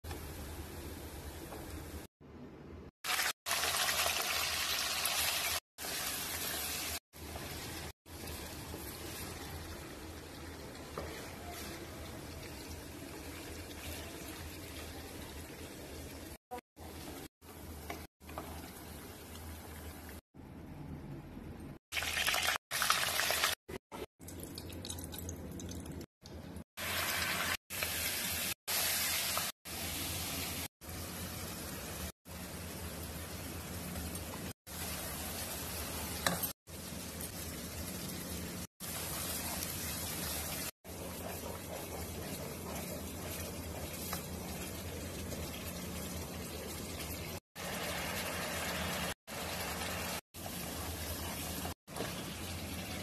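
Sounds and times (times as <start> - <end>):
hot oil sizzling: 3.0 - 20.2, 21.9 - 23.6, 26.8 - 53.0
wooden spatula stirring: 10.9 - 15.0, 38.9 - 47.1.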